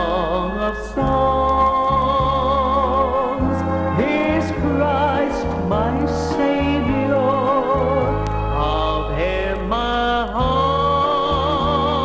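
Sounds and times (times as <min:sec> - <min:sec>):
instrumental accompaniment: 0:00.0 - 0:12.0
voices singing with vibrato: 0:00.0 - 0:12.0.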